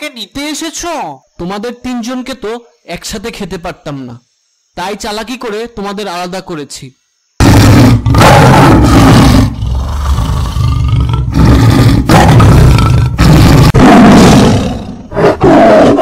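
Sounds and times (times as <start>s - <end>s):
tiger roaring: 7.4s - 16.0s.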